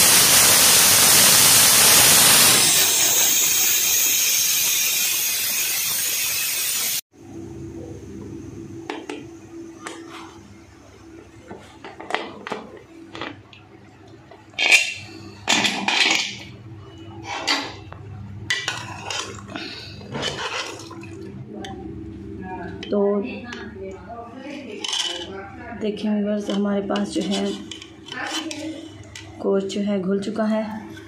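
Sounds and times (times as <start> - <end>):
ladle clinking and scraping pot: 18.5 - 21.1, 24.7 - 25.4, 26.5 - 29.2.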